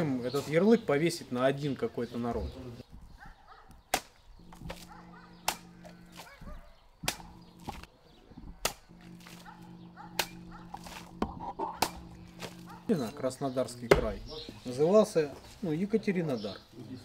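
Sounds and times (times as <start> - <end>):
blade cutting plastic bottles: 3.9 - 13.2
steady low hum: 4.4 - 14.3.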